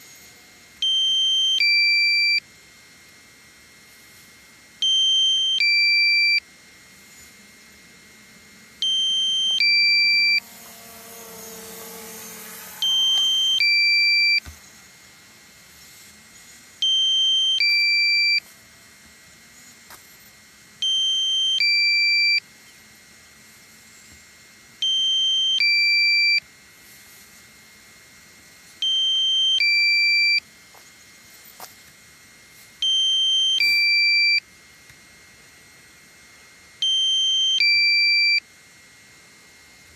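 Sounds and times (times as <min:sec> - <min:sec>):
electronic two-tone alarm: 0:00.8 - 0:02.4, 0:04.8 - 0:06.4, 0:08.8 - 0:14.4, 0:16.8 - 0:18.5, 0:20.8 - 0:22.4, 0:24.8 - 0:26.4, 0:28.8 - 0:30.5, 0:32.8 - 0:34.5, 0:36.8 - 0:38.5.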